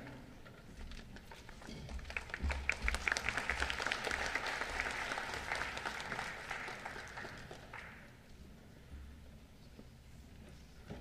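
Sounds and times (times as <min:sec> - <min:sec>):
audience applauding: 0:01.3 - 0:08.2.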